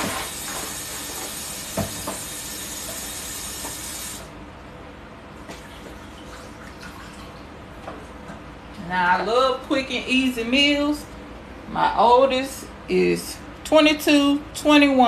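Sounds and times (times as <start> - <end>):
food steamer hissing: 0.0 - 4.3.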